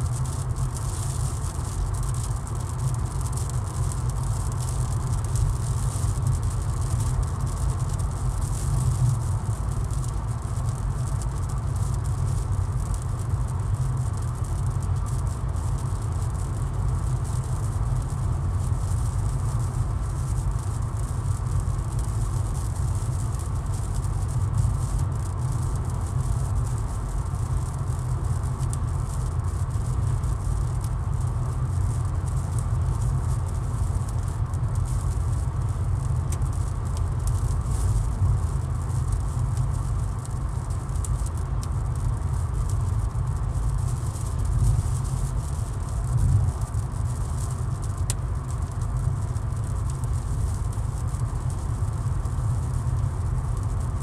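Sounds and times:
raindrops pattering on car: 0.1s - 54.0s
car road rumble: 0.2s - 10.3s, 34.8s - 39.7s, 43.6s - 51.6s.

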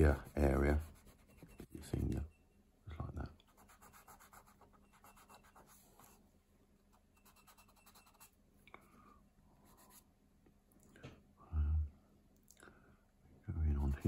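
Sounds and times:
pencil drawing strokes on paper: 0.0s - 1.9s, 3.5s - 6.2s, 6.9s - 8.4s, 13.7s - 14.0s.

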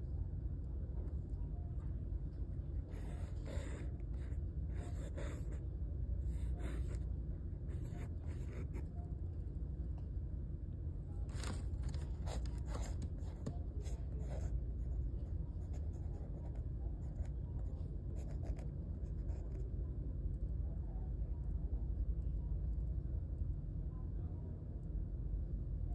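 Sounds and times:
steady low hum: 0.0s - 25.9s
pencil scratching on paper: 2.8s - 5.6s, 6.2s - 7.0s, 7.7s - 8.9s, 12.2s - 15.0s, 15.6s - 19.6s.

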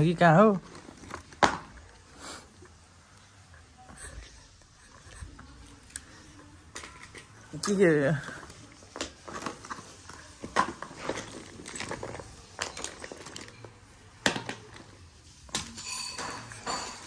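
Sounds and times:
fabric bag rustling: 0.4s - 1.5s, 8.1s - 13.8s
small items clicking and knocking: 5.6s - 17.0s.

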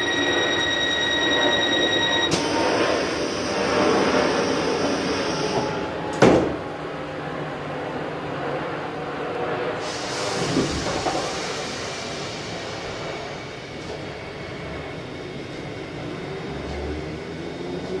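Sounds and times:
train rumble: 0.0s - 18.0s
train hiss: 3.0s - 5.9s, 9.8s - 14.2s.

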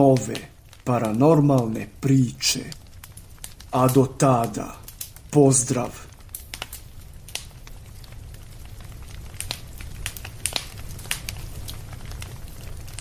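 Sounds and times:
campfire crackling: 0.0s - 13.0s
fire pops: 0.0s - 13.0s.

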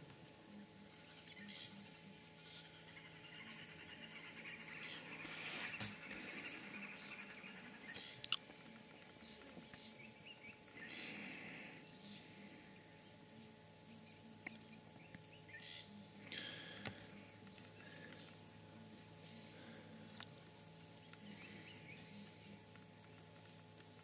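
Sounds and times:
insect buzz: 0.0s - 24.0s
faint bird calls: 0.4s - 23.7s.

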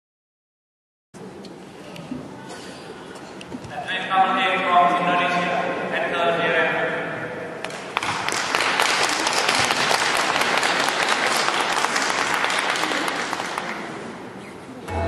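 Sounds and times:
audience applause: 7.7s - 14.1s.

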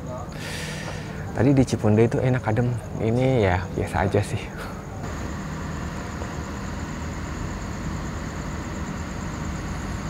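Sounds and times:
faint high whine: 0.0s - 10.0s
diesel engine idling: 5.0s - 10.0s.

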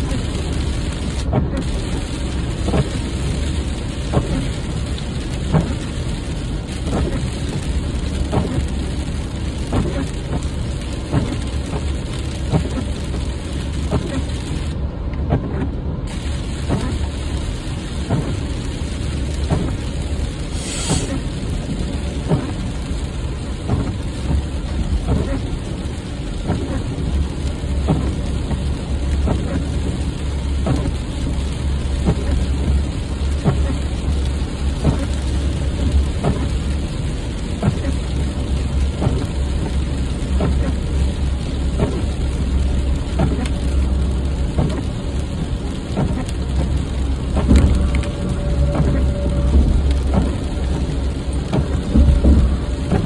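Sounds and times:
low road rumble: 0.0s - 53.0s
rain drops ticking on windshield: 0.0s - 53.0s
short hiss: 20.5s - 21.2s.

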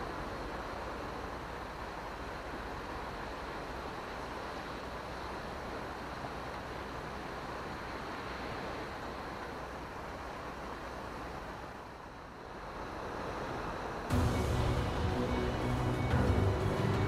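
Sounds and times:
sea surf on rocky shore: 0.0s - 17.0s.

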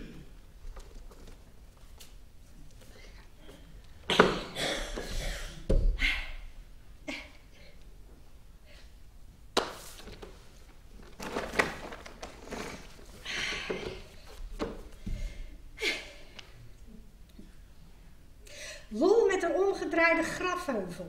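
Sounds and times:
rustling: 9.7s - 15.0s.

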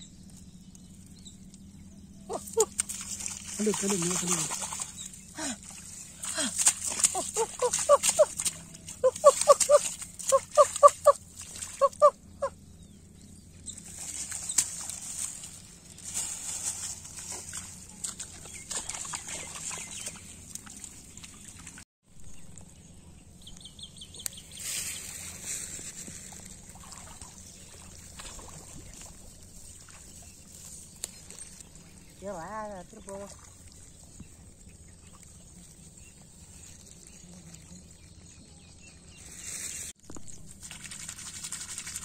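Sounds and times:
hands squelching in wet mud: 2.3s - 12.0s, 13.8s - 21.8s
short clucking calls: 6.9s - 12.6s.

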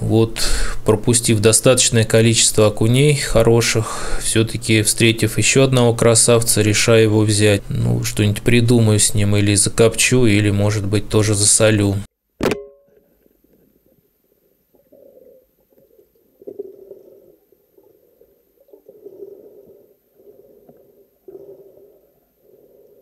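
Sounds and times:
speargun firing crack: 12.4s - 12.8s.

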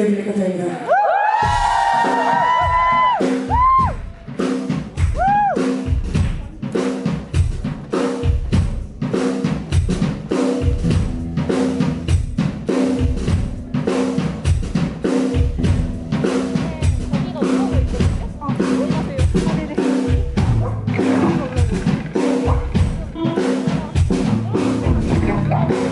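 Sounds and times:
drum kit beat: 1.3s - 25.9s
low repeating riff: 10.7s - 14.2s, 15.3s - 25.9s.

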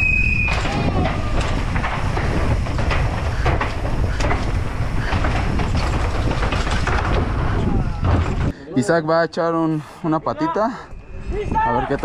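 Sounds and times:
bike chain and frame clattering: 0.0s - 8.5s
wind and tyre rumble: 0.0s - 8.6s.

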